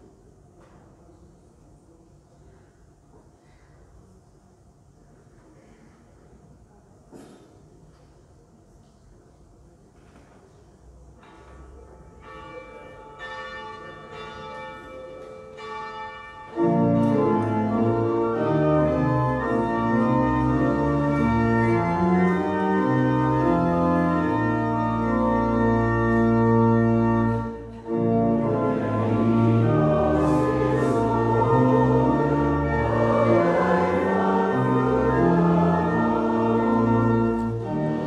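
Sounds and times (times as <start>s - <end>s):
church organ chords: 12.0s - 38.0s.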